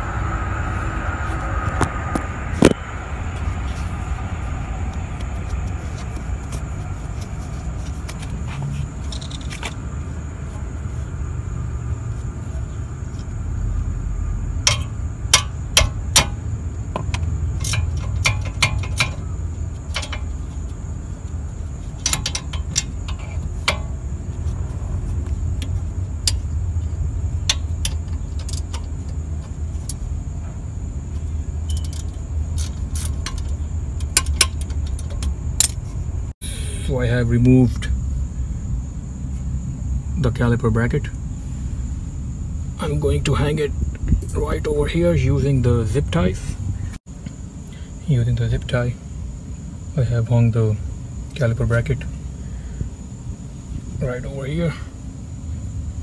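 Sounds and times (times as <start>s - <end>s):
steady low rumble: 0.0s - 56.0s
hammer striking metal wrench: 14.6s - 16.4s, 17.0s - 19.2s, 22.0s - 24.0s.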